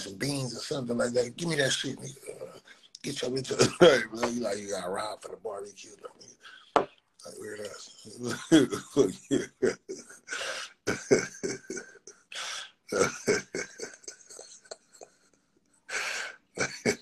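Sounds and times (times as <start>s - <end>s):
person coughing and clearing throat: 3.5s - 4.3s, 8.1s - 14.8s, 16.0s - 17.0s.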